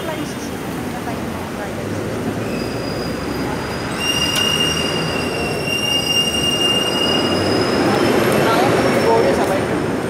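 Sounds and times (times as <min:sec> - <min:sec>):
pallet jack wheels squealing: 0:02.4 - 0:08.2.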